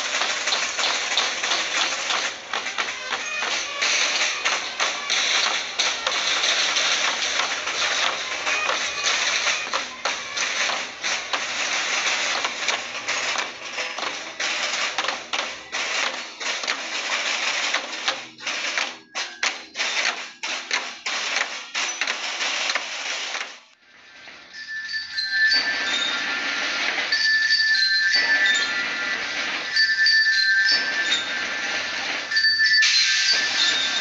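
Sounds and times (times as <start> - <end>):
marching band drums: 0.0 - 23.7
high bell-like tones: 24.5 - 26.4, 27.1 - 31.6, 32.3 - 34.0.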